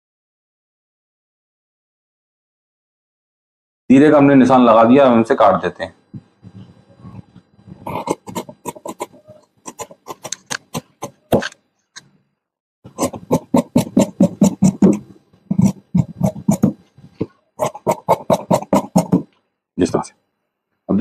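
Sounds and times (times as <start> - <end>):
shears snipping fabric: 7.9 - 11.6.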